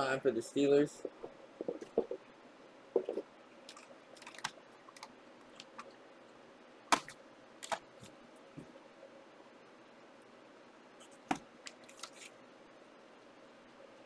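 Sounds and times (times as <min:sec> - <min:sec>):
cards clicking and rustling: 0:03.7 - 0:05.9, 0:11.3 - 0:12.3.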